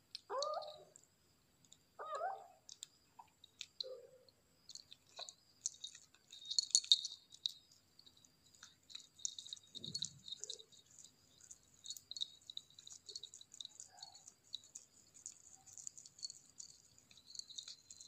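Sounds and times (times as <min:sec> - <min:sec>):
collar bells jingling: 0:04.7 - 0:18.0
kitten chewing: 0:04.7 - 0:18.0.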